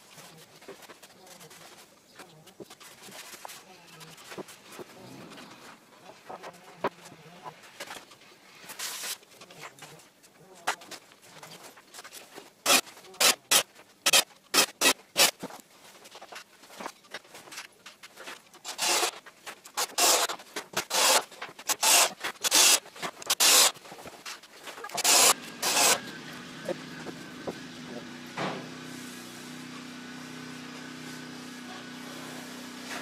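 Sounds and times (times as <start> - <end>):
rubbing strokes against wood: 0.0 - 33.0
cordless drill driving screw: 18.7 - 19.2, 19.8 - 23.8, 24.9 - 26.0.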